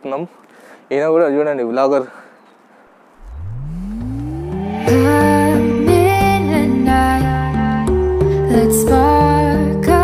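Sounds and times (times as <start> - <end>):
bass line: 3.2 - 7.7
gliding melody: 3.2 - 7.8.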